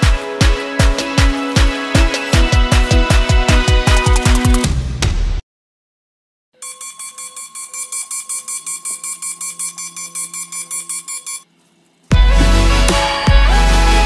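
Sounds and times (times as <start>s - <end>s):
alarm beeping in rapid pulses: 6.6s - 11.5s.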